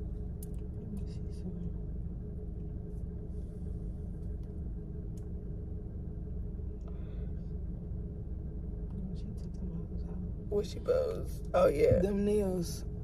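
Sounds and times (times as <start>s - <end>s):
constant hum: 0.0s - 13.0s
steady low rumble: 0.0s - 13.0s
faint clicks: 0.4s - 1.2s.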